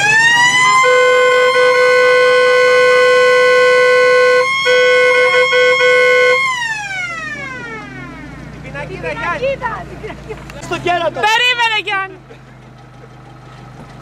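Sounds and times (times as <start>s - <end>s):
siren-like wail: 0.0s - 8.4s.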